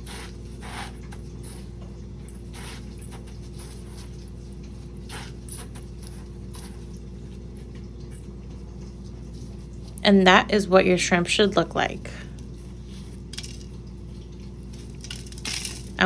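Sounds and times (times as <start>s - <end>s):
low electrical hum: 0.0s - 16.0s
breadcrumbs rustling and crunching: 12.4s - 13.9s, 14.5s - 16.0s.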